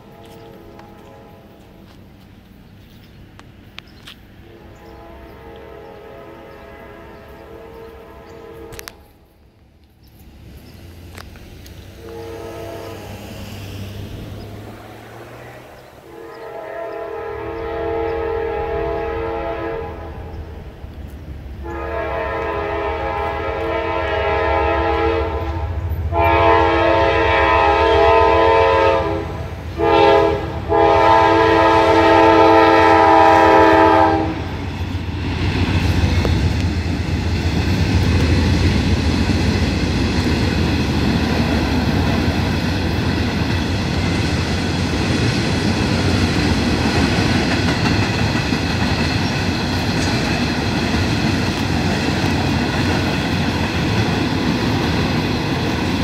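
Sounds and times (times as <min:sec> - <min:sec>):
locomotive horn blasts: 0:00.0 - 0:01.6, 0:04.4 - 0:09.1, 0:11.9 - 0:13.2, 0:15.2 - 0:20.3, 0:21.6 - 0:34.6
train cars rolling rumble: 0:00.0 - 0:56.0.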